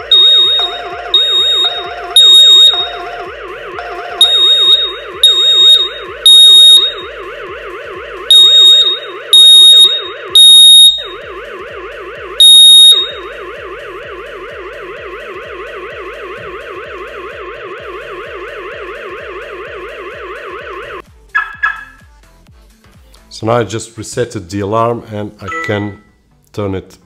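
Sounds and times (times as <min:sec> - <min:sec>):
smoke alarm shrill beeps: 0:00.0 - 0:07.2, 0:08.3 - 0:11.2, 0:12.4 - 0:13.5, 0:21.4 - 0:22.0, 0:25.5 - 0:26.1
low warbling siren: 0:00.0 - 0:22.0.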